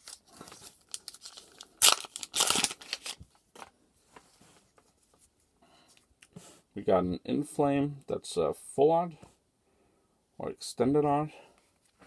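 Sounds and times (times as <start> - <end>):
cards rustling: 0.0 - 5.3
foil pack tearing: 0.9 - 3.2.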